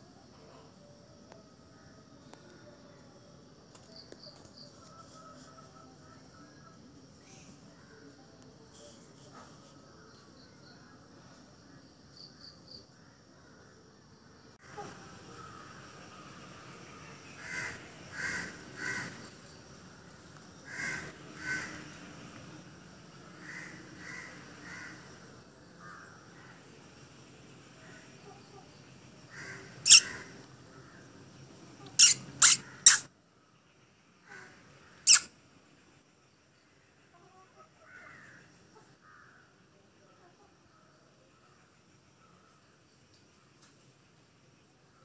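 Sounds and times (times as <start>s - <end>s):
faint chirps: 0.0s - 45.0s
crow cawing: 15.4s - 15.8s, 17.4s - 19.3s, 20.6s - 21.9s, 23.4s - 25.1s, 29.3s - 30.4s, 34.2s - 35.2s, 37.8s - 38.4s, 39.0s - 39.4s
fruit bat screeching squeaks: 29.8s - 30.2s, 32.0s - 33.1s, 35.1s - 35.3s.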